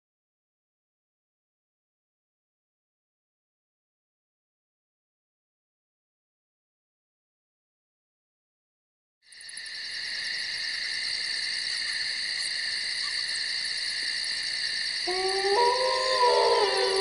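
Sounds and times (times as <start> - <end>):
night insects chirring: 9.3 - 17.0
howl-like wail: 15.1 - 17.0.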